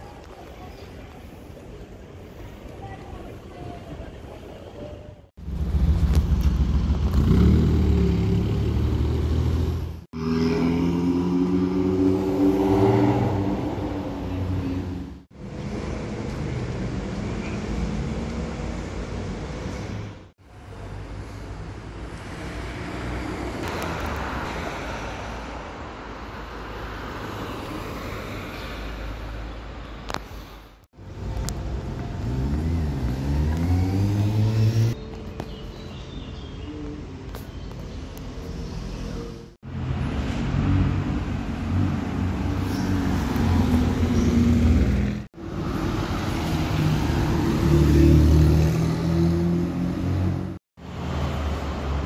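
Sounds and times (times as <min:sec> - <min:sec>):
street noise: 0:00.0 - 0:52.0
traffic rumble: 0:00.0 - 0:52.0
vehicle passing: 0:32.0 - 0:35.0, 0:39.8 - 0:52.0
sports car accelerating: 0:32.2 - 0:35.0.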